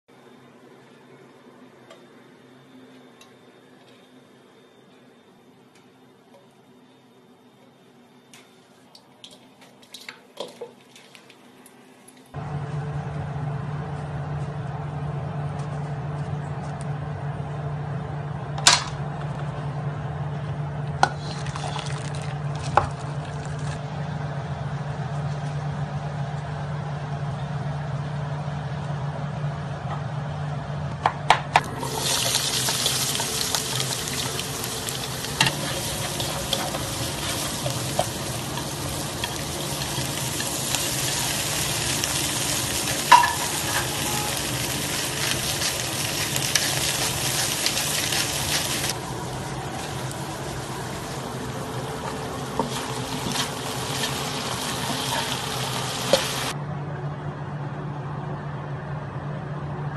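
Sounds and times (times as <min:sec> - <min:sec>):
low hum: 0:12.4 - 0:59.9
okra sizzling in oil: 0:31.6 - 0:56.6.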